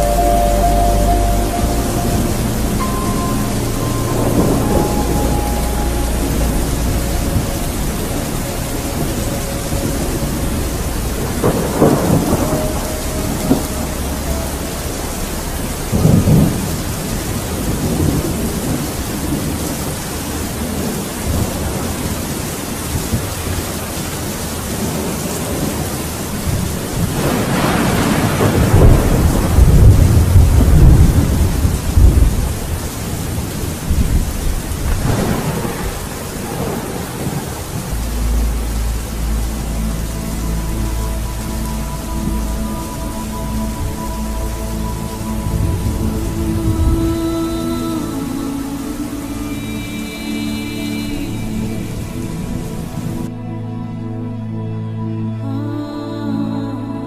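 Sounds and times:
steady rain: 0.0s - 54.5s
rolling thunder: 1.6s - 23.6s, 24.5s - 38.3s.

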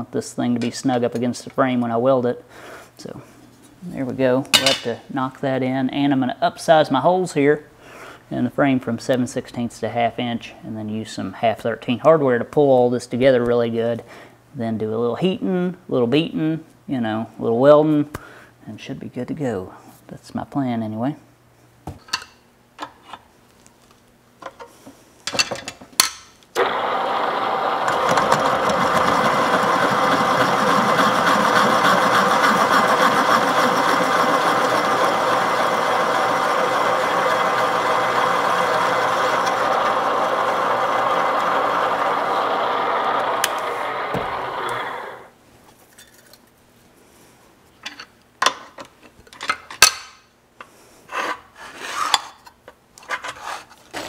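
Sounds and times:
drill press cutting steel: 26.6s - 45.3s.

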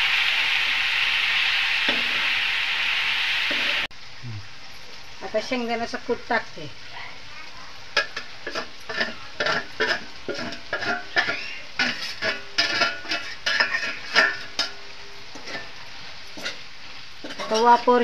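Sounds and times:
faint sizzle of frying: 0.0s - 18.0s
steel spoon scraping and tapping: 8.0s - 14.8s.

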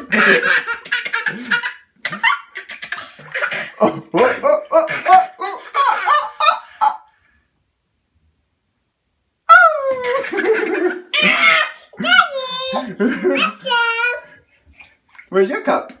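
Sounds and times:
toddler laughing: 0.0s - 7.0s, 9.8s - 14.2s.

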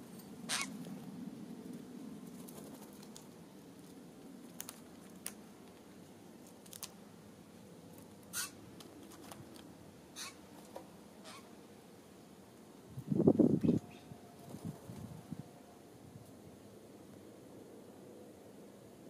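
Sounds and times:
birds pecking at a feeder: 2.2s - 7.0s, 7.8s - 11.4s.

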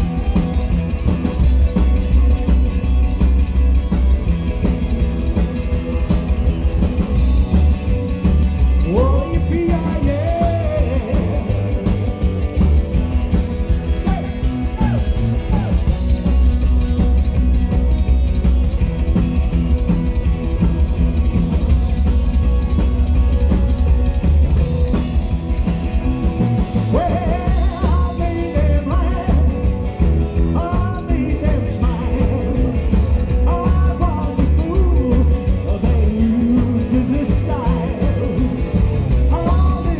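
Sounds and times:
drums: 0.0s - 39.9s
electric guitars: 0.0s - 39.9s
upright double bass: 0.0s - 39.9s.

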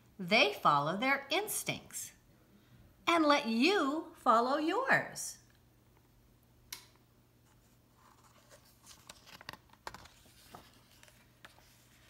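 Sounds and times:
paper rustling: 7.5s - 12.0s.

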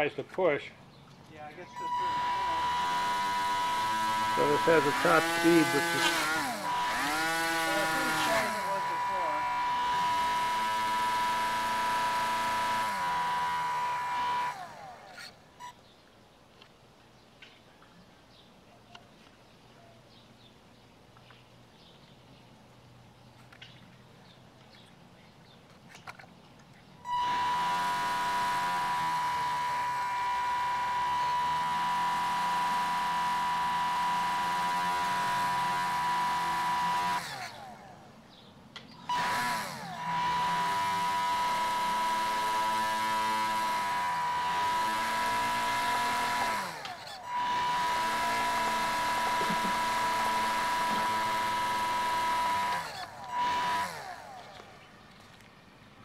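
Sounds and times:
small electric motor whining: 1.6s - 15.8s, 27.0s - 38.1s, 39.0s - 55.4s.

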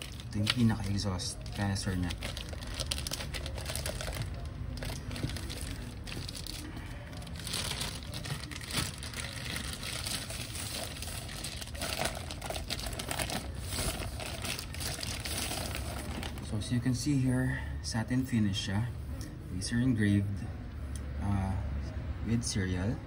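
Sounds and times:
plastic bag crinkling: 0.0s - 16.5s.

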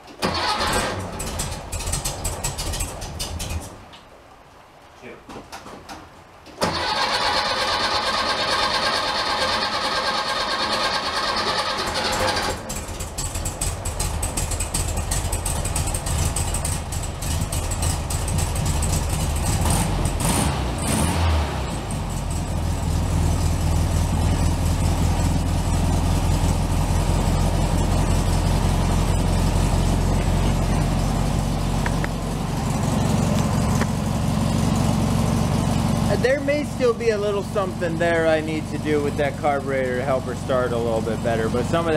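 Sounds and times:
car starter cranking: 0.1s - 3.8s, 6.6s - 19.6s
engine revving: 6.6s - 13.0s, 19.2s - 41.9s
car engine idling: 6.6s - 21.0s, 21.7s - 41.9s.

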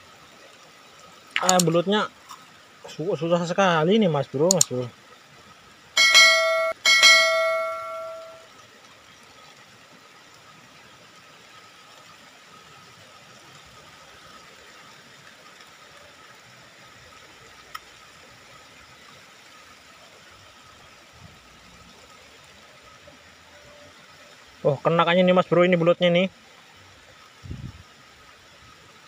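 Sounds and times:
faint rain hiss: 0.0s - 29.0s
notification bell: 6.0s - 8.4s.

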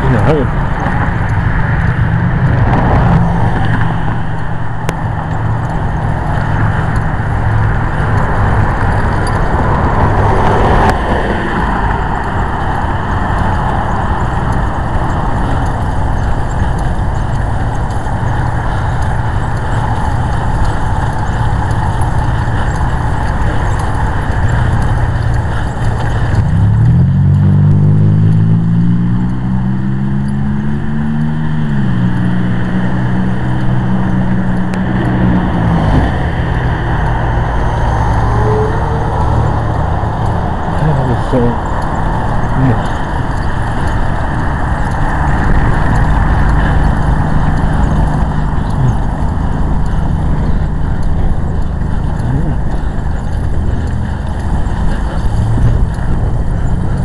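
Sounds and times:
road noise: 0.0s - 57.0s
vehicle engine running: 0.0s - 57.0s.

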